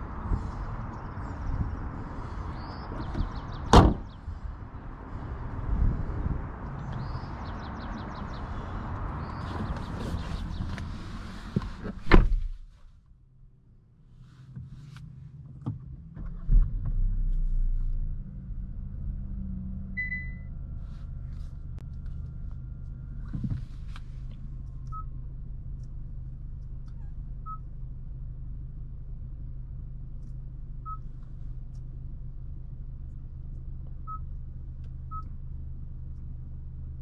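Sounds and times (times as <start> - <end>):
car engine starting and idling: 0.0 - 37.0
car door shutting: 3.0 - 4.1, 11.5 - 12.6
soft touchscreen beeps: 20.0 - 20.5.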